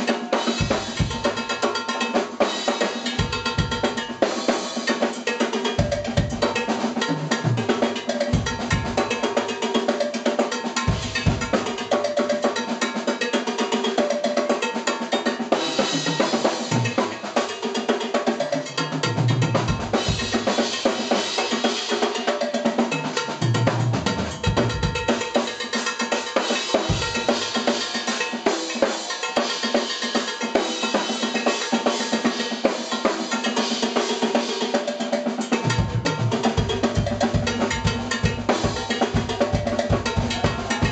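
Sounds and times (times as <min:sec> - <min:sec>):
busy drum kit: 0:00.0 - 0:40.9
hand percussion: 0:00.0 - 0:40.9
jazz fusion band playing: 0:19.0 - 0:31.3, 0:35.0 - 0:40.9.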